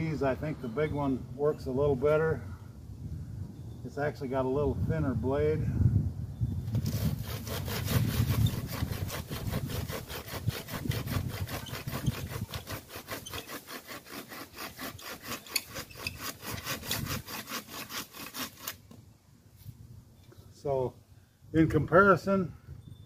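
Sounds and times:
hand saw cutting branch: 6.7s - 19.0s.

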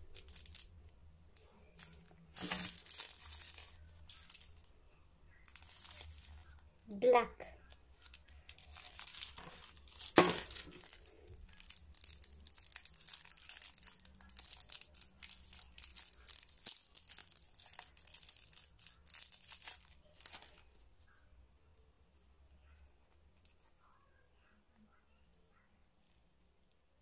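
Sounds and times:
metallised wrapper crinkling: 0.0s - 6.7s, 7.6s - 20.9s.

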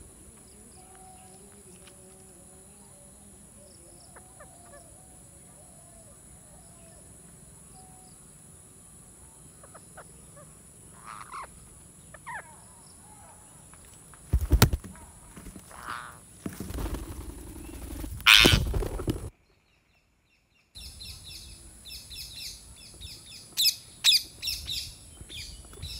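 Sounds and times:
faint wavering parakeet calls: 2.6s - 8.3s, 9.2s - 13.6s
parakeet squawks: 18.3s - 18.6s.

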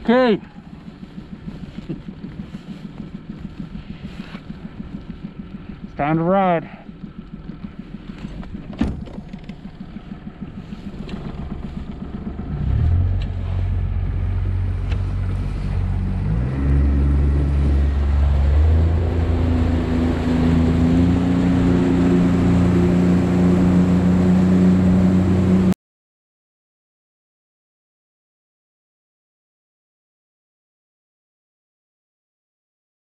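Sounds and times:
motorboat engine: 0.0s - 25.8s
wind and water rushing: 10.0s - 25.8s.

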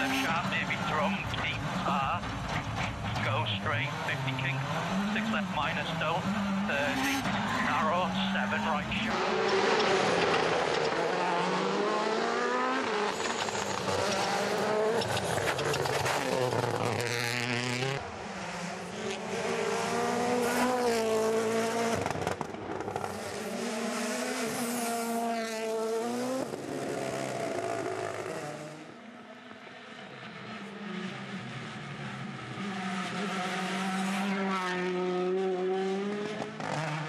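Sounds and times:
cars sweeping past: 0.0s - 29.0s
rally car engines revving: 0.0s - 37.0s.

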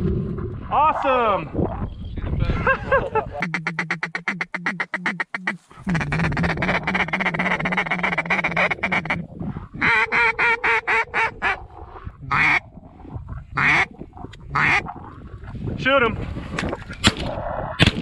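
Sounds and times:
duck call chatter: 3.4s - 9.2s, 9.8s - 11.6s, 12.3s - 12.6s, 13.6s - 13.9s, 14.5s - 14.9s
duck call quacks: 3.4s - 9.2s, 9.8s - 11.6s, 13.6s - 13.9s, 14.6s - 14.8s.

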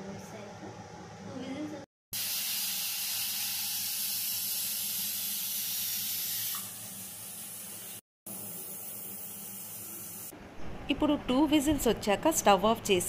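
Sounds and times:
pressure cooker steam hiss: 2.2s - 10.3s.

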